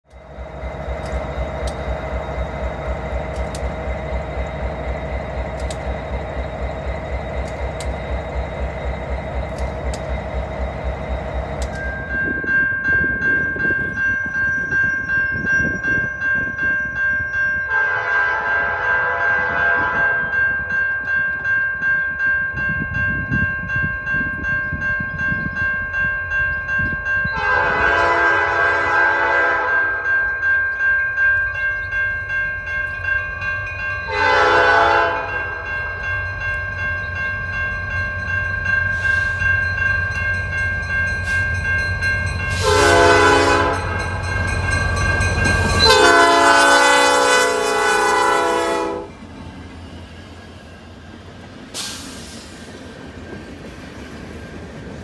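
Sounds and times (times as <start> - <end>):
train horn blasts: 17.7 - 20.4, 27.3 - 30.1, 34.1 - 35.7, 42.5 - 44.2, 45.8 - 49.1.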